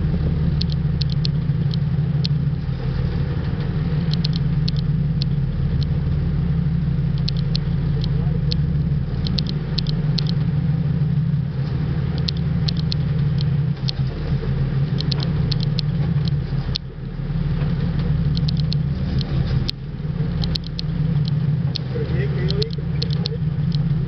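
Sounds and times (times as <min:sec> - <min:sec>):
boat engine droning: 0:00.0 - 0:24.0
high-pitched ticks: 0:00.6 - 0:02.4, 0:04.1 - 0:05.9, 0:07.1 - 0:08.6, 0:09.2 - 0:10.4, 0:12.2 - 0:14.0, 0:15.0 - 0:16.9, 0:18.3 - 0:19.8, 0:20.4 - 0:21.9, 0:22.5 - 0:23.9.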